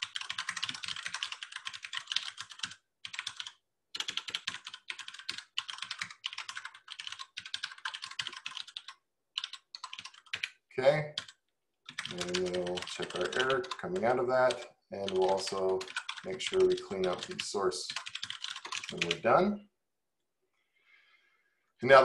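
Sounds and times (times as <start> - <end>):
fast typing on a keyboard: 0.0 - 19.2.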